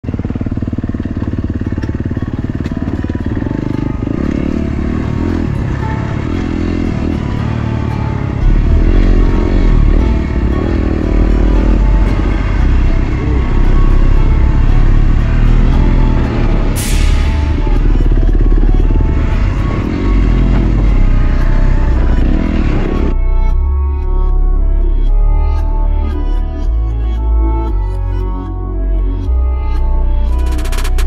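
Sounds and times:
dirt bike engine running: 0.0 - 23.1, 30.2 - 31.0
music with deep bass: 0.0 - 31.0.

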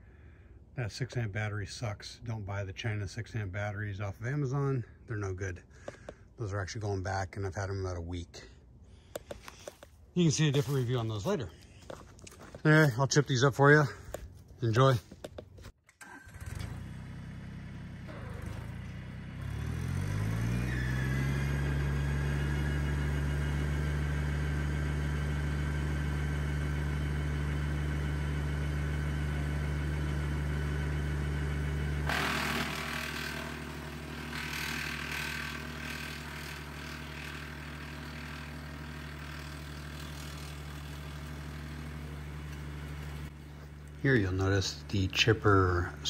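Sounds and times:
tractor engine running: 9.0 - 46.0
wood chipper shredding branches: 16.0 - 46.0.

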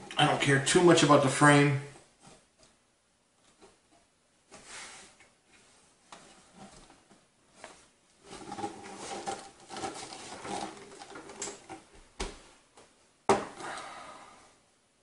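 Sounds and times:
monitor scraping and handling: 4.5 - 11.9.

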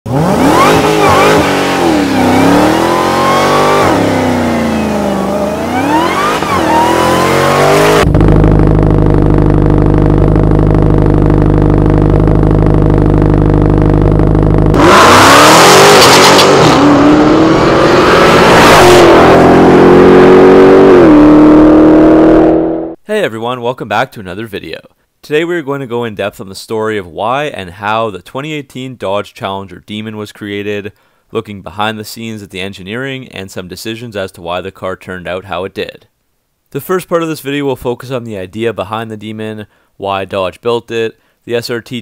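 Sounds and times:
car engine idling: 0.1 - 15.4
car engine revving: 0.1 - 23.0
car full-throttle acceleration: 0.1 - 23.0.

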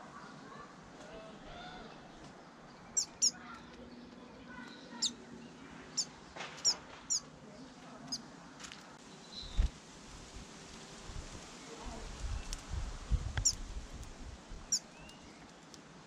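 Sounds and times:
songbirds chirping: 0.0 - 9.7, 14.4 - 16.0.

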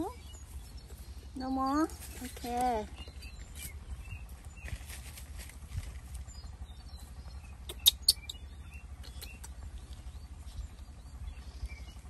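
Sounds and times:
baby monkey squeaking: 7.7 - 8.4.

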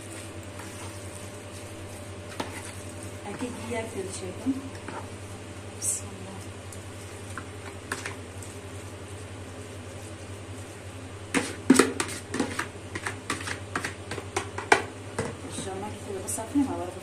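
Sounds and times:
food scraped from bowl: 0.1 - 3.6, 11.3 - 14.2.

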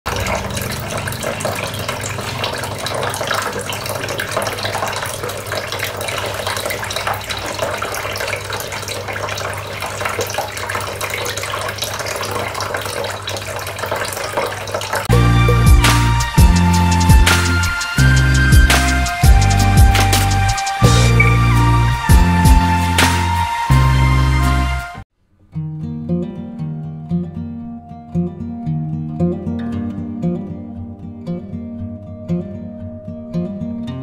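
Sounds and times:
fountain water trickling and splashing: 0.1 - 15.1
loud music with a beat: 15.1 - 24.7.

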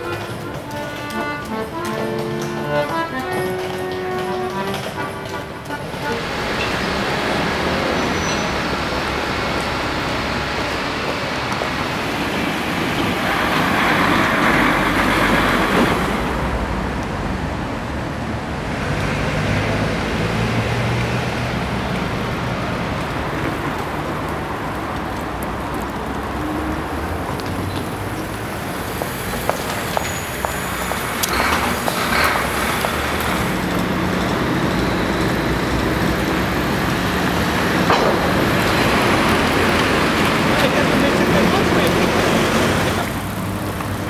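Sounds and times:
loud vehicle passing: 0.0 - 44.0
road traffic: 0.0 - 44.0.

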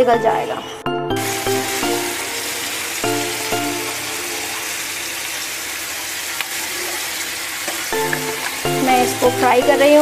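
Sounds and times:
background music: 0.0 - 5.1, 7.9 - 10.0
chicken sizzling in a pan: 1.2 - 10.0.

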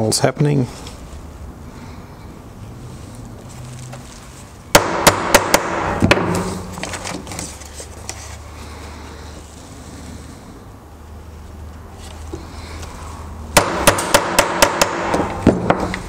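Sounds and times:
hammer striking steel punch: 4.7 - 6.6, 13.6 - 16.0
paper rustling: 6.5 - 8.5.

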